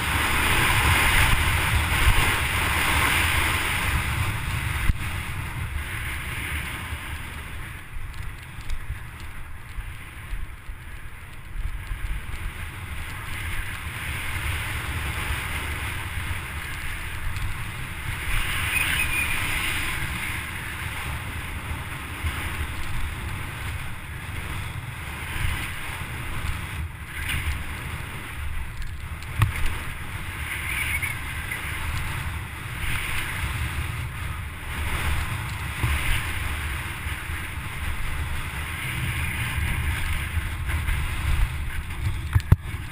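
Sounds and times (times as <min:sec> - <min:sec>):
bike tyre noise: 0:00.0 - 0:42.9
wind rumbling on microphone: 0:00.0 - 0:42.9
bike knocks and rattles: 0:28.8 - 0:29.9, 0:40.7 - 0:42.9.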